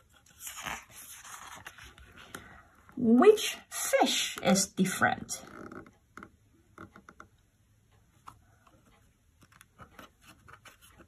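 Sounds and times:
hands rustling book pages: 0:00.0 - 0:02.6, 0:08.2 - 0:11.0.

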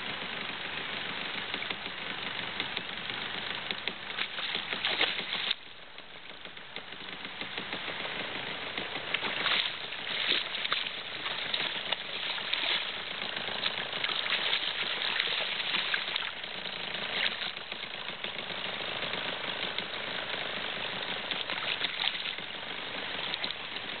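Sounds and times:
water rushing: 0:03.7 - 0:05.8, 0:08.4 - 0:24.0
fish thrashing splashes: 0:04.1 - 0:05.6, 0:09.1 - 0:18.0, 0:21.2 - 0:23.8.

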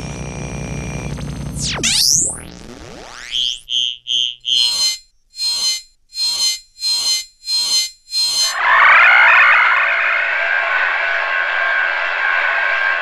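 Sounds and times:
electronic pitch sweeps: 0:00.0 - 0:13.0
short high beeps: 0:03.7 - 0:09.7.

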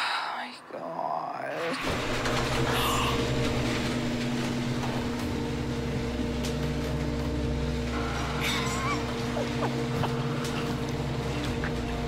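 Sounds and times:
paper shredder motor hum: 0:01.8 - 0:12.0
shredder squeal: 0:07.9 - 0:12.0.

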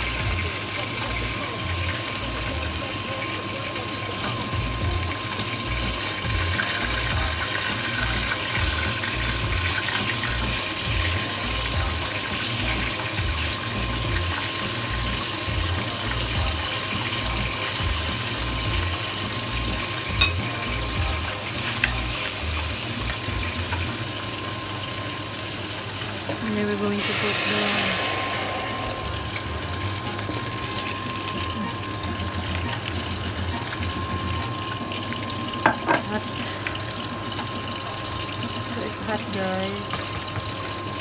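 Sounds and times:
garlic and onion sizzling in oil: 0:00.0 - 0:41.0.

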